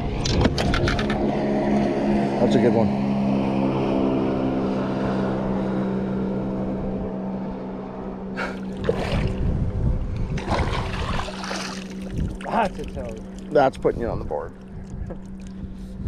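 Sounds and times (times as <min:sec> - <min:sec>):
boat motor humming: 0:00.0 - 0:16.0
water splashing: 0:08.5 - 0:09.6, 0:10.3 - 0:15.6.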